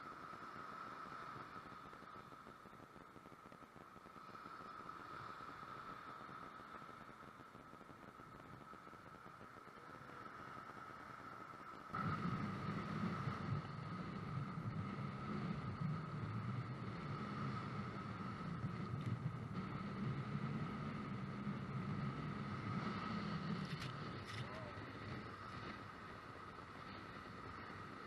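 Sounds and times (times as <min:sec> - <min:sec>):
thin whine: 0:00.0 - 0:28.0
strong wind buffeting microphone: 0:12.0 - 0:28.0.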